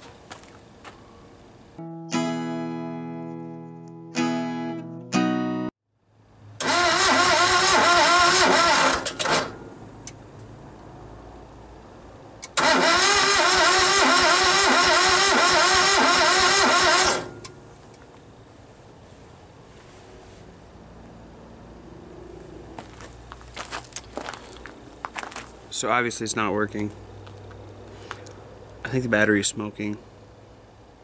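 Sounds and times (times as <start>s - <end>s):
diesel engine cranking: 6.6s - 10.6s, 12.4s - 18.2s.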